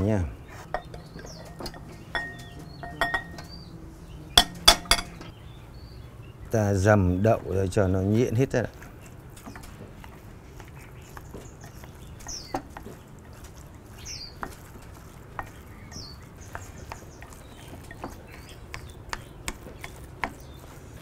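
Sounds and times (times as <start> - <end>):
bird chirping: 0.0 - 21.0
chopsticks tapping glass bowl: 0.7 - 3.5, 4.4 - 5.2, 15.3 - 20.4.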